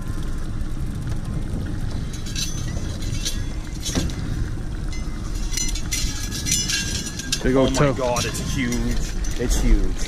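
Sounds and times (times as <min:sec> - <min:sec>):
steady low rumble: 0:00.0 - 0:10.0
metal clink: 0:02.1 - 0:10.0.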